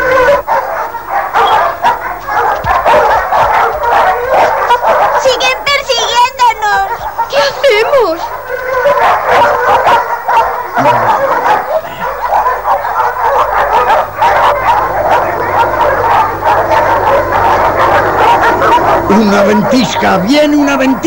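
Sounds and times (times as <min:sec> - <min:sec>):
cartoon wolves barking and yelping: 0:00.0 - 0:21.0
low steady rumble: 0:13.2 - 0:19.4.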